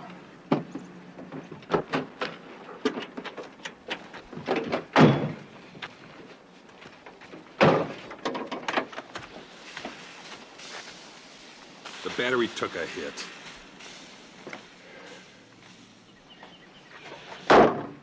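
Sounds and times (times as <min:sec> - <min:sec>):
truck door slamming: 0:04.6 - 0:05.5.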